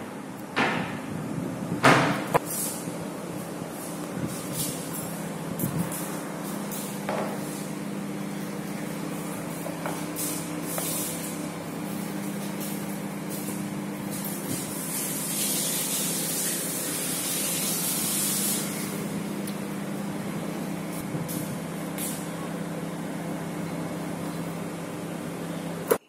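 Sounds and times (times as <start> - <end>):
mechanical hum: 0.0 - 26.0.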